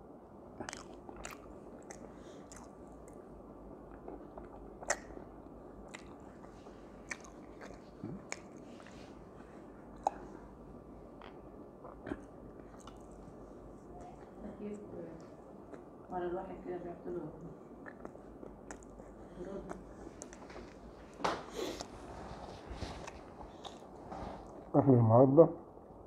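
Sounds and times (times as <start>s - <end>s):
lip smacks: 0.6s - 3.2s, 3.9s - 5.2s, 5.9s - 9.0s, 17.8s - 22.0s
man chewing and biting food: 0.6s - 9.2s, 11.1s - 14.2s, 17.7s - 20.9s, 23.0s - 24.7s
sharp mouth clicks: 17.8s - 19.0s.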